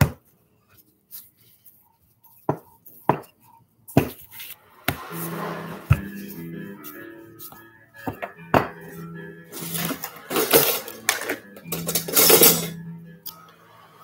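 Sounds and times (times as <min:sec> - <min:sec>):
rustling handling noises: 0:00.3 - 0:04.6
soft background music: 0:01.8 - 0:14.0.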